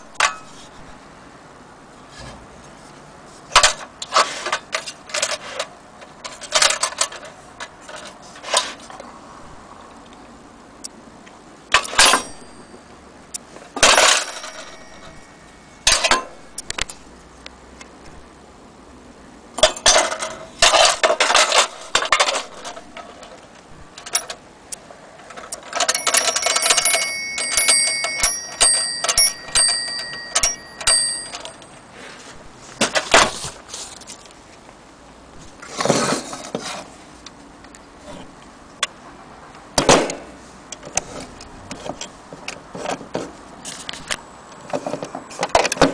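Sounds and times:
small bell ringing: 12.0s - 13.1s, 14.0s - 15.8s, 25.8s - 31.9s
toy telephone metal clattering: 13.8s - 15.2s, 19.6s - 23.4s, 25.3s - 31.8s.

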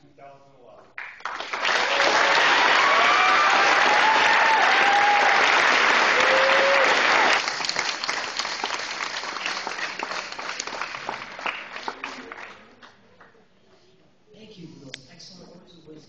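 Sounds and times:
audience applauding: 1.0s - 13.0s
cheers: 1.6s - 7.5s.

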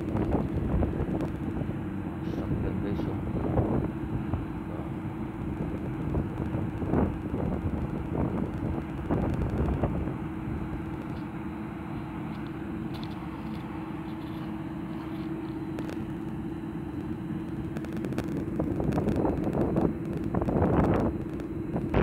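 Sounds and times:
constant low hum: 0.0s - 22.0s
wind buffeting microphone: 0.0s - 22.0s.

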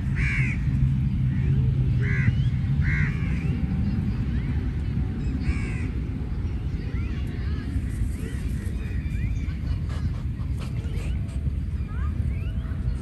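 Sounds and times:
steady low rumble: 0.0s - 13.0s
crow cawing: 0.2s - 0.6s.

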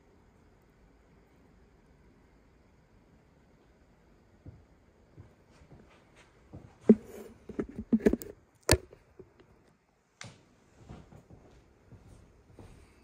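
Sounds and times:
objects knocking on a table: 6.9s - 9.3s.

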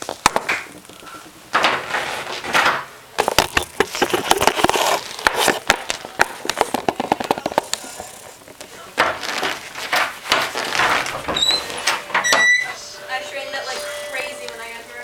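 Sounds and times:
clicks and knocks: 0.0s - 4.6s.

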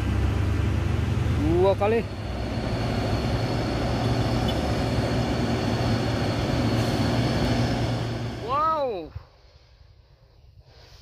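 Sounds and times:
diesel truck engines droning: 0.0s - 9.6s.

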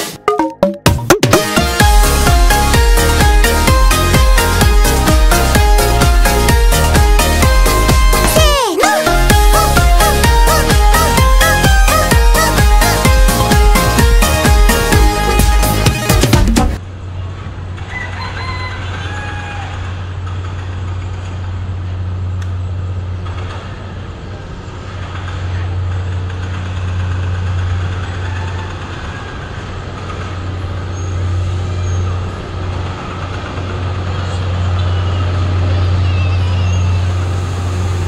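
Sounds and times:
diesel locomotive engine drone: 1.4s - 38.0s.

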